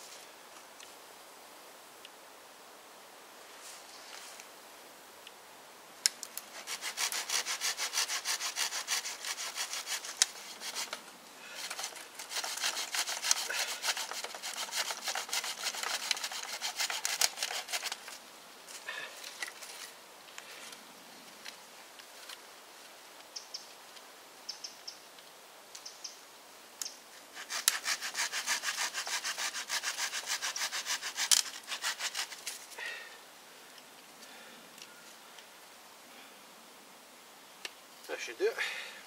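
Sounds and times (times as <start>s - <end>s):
hand saw cutting wood: 6.5s - 11.0s, 11.6s - 18.2s, 27.3s - 32.6s.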